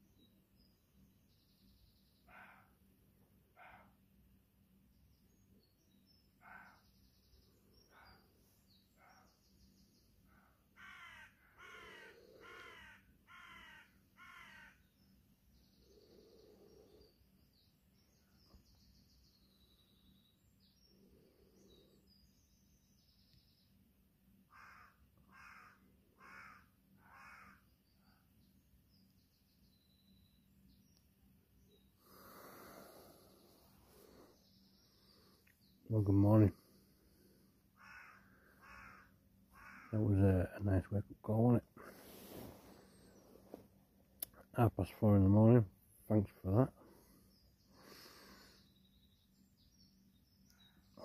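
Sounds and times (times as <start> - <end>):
faint bird chirping: 0.0 - 51.0
crow cawing: 10.8 - 14.9, 24.5 - 27.7, 37.8 - 40.0.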